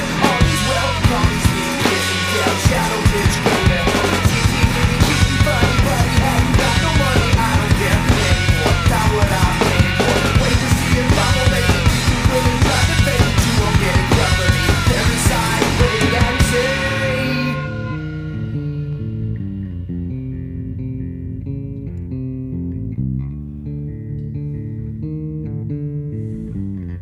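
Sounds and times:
drum kit beat: 0.0 - 19.1
punk rock band playing: 0.0 - 23.0.

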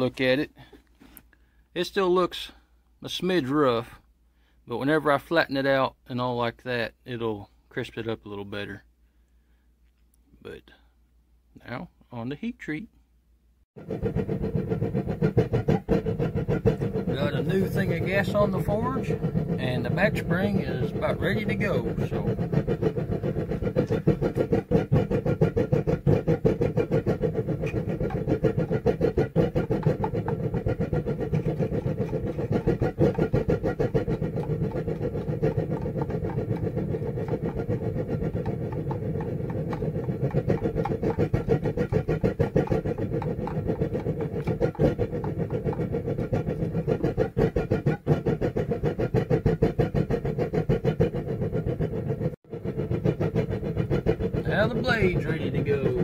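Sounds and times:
gas burner roaring with flutter: 13.8 - 56.0.

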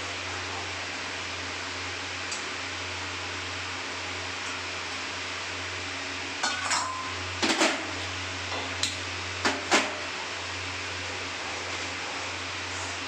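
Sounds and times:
pans and utensils clanking: 6.4 - 8.7.

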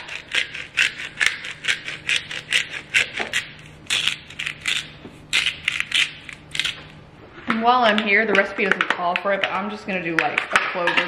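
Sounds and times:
pepper grinder crunching: 0.0 - 7.0.

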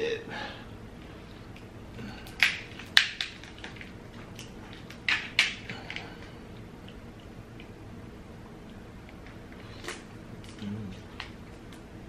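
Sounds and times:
crab shell cracking: 1.5 - 7.8.

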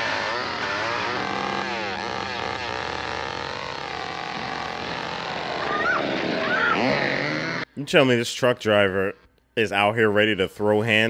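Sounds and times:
engine revving: 0.0 - 7.8.

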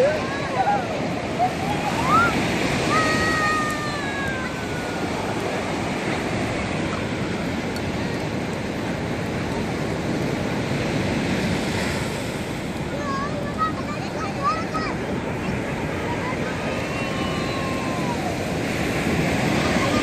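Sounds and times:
sea surf washing on shore: 0.0 - 20.0
child's high-pitched voice: 12.9 - 18.4.

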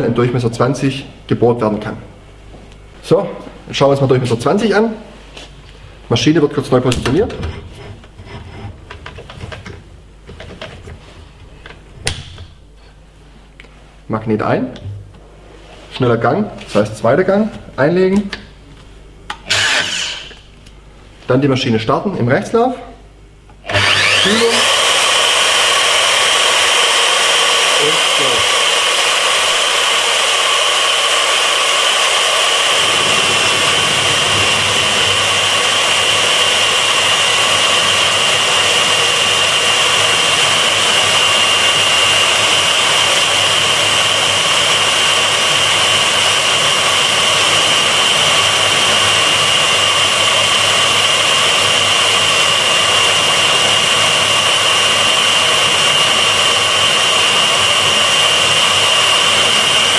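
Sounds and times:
core drill whining: 19.3 - 20.5, 23.6 - 59.9
drill cutting steel: 19.3 - 20.5, 23.6 - 59.9.

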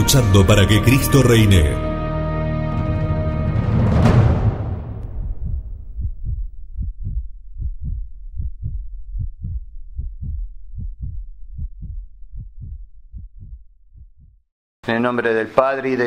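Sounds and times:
low heartbeat-like thumps: 3.8 - 14.5.

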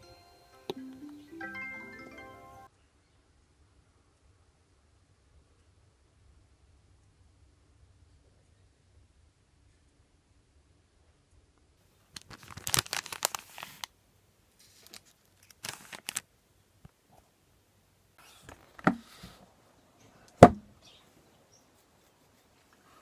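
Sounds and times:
plastic packaging crinkling: 12.0 - 13.9, 14.6 - 16.3
knocks on a hard surface: 20.4 - 20.7.

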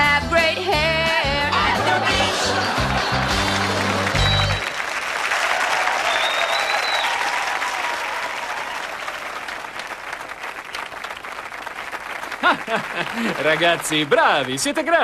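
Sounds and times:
music: 0.0 - 4.6
audience applauding and cheering: 1.4 - 15.0.

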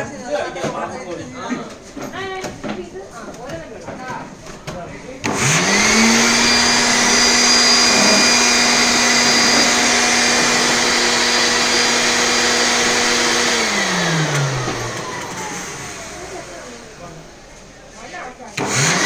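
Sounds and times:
electric fan humming: 5.1 - 19.0
fan spinning down: 5.2 - 17.4.

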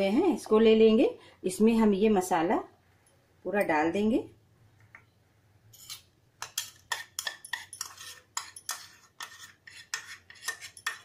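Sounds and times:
steel spoon scraping bowl: 5.7 - 11.0.

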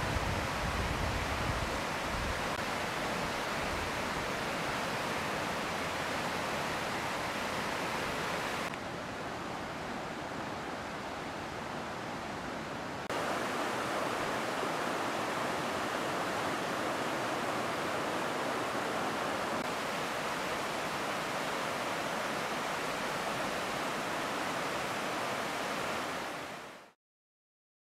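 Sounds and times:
floodwater rushing: 0.0 - 11.0, 13.0 - 26.9.

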